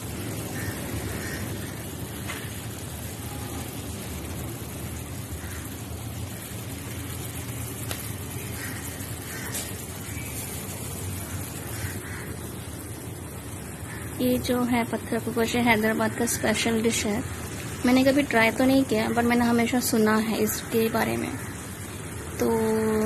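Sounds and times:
meat sizzling on hot stone: 0:00.0 - 0:23.0.

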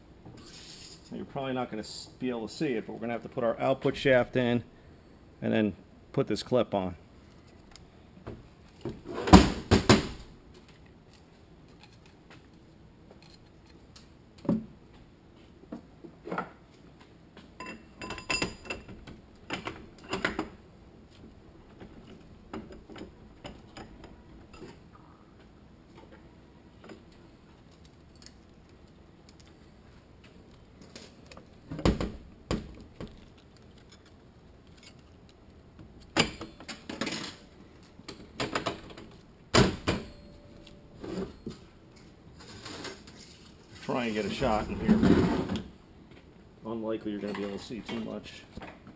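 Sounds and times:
metal parts clinking and knocking: 0:13.2 - 0:14.0, 0:32.8 - 0:35.4.

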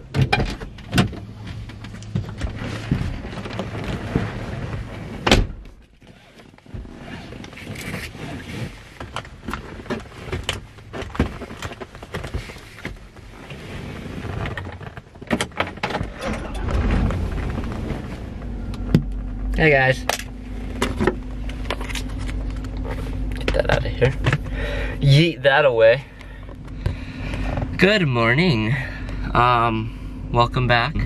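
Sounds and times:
clicks and knocks in cabin: 0:00.0 - 0:03.8, 0:14.4 - 0:17.7
car door shutting: 0:04.0 - 0:05.8, 0:15.3 - 0:22.0
clothing rustle: 0:06.0 - 0:19.5.

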